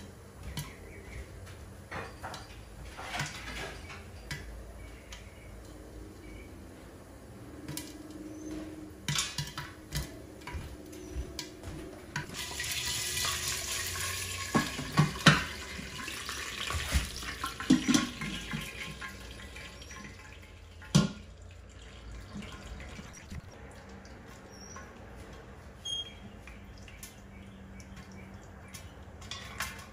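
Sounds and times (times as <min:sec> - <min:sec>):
oil sizzling: 0:12.2 - 0:25.1.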